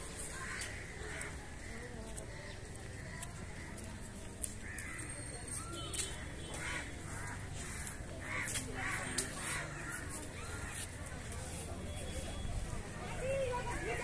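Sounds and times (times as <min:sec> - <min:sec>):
murmur of distant voices: 0:00.0 - 0:14.0
crows cawing: 0:00.3 - 0:03.8, 0:04.6 - 0:05.1, 0:06.6 - 0:10.6.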